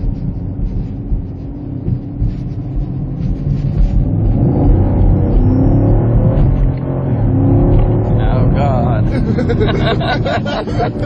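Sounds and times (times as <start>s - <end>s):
car engine accelerating: 0.0s - 11.0s.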